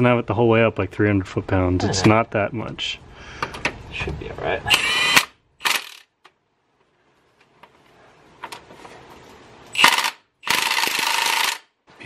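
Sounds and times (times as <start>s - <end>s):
impact wrench hammering: 9.8s - 11.6s.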